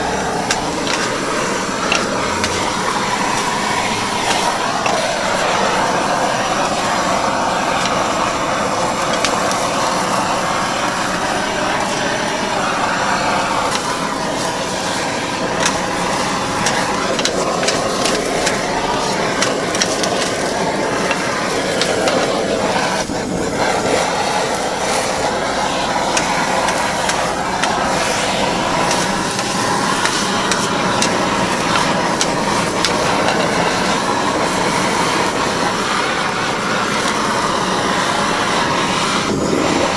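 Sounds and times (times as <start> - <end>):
food sizzling on griddle: 0.0 - 39.9
gas torches hissing: 0.0 - 39.9
metal spatula scraping: 0.4 - 5.9, 13.6 - 22.4.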